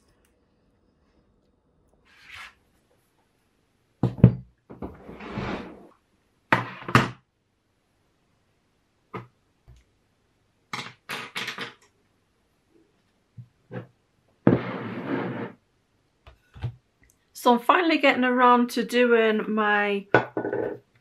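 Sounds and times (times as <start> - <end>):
objects knocking on wooden desk: 4.0 - 5.0, 20.2 - 20.8.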